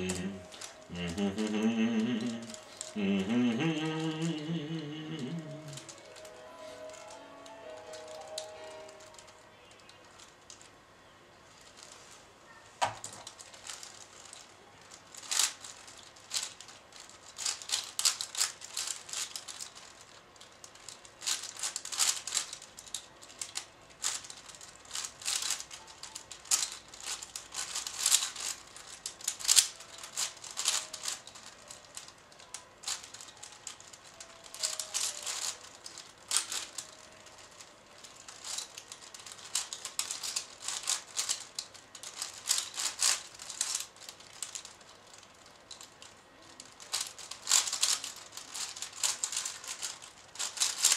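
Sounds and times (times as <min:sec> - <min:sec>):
puzzle cube clicking: 0:00.0 - 0:06.3, 0:21.2 - 0:37.6, 0:46.8 - 0:50.9.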